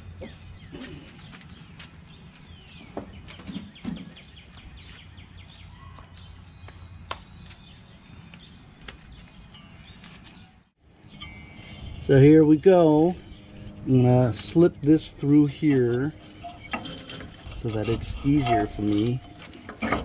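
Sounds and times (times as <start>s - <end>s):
birds chirping: 0.0s - 20.0s
lawn tractor knocks and clunks: 18.6s - 20.0s.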